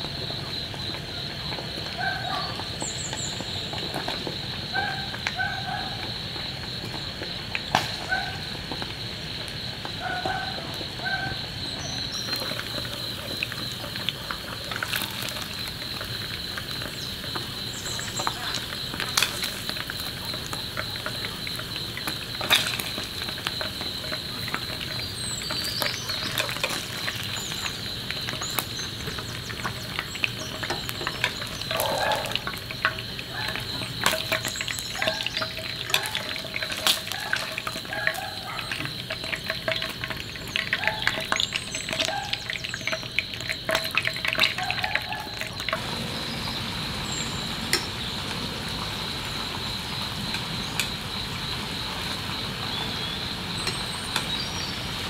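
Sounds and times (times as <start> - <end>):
food sizzling in frying pan: 10.7 - 55.0
tongs clicking against pan: 29.6 - 42.1.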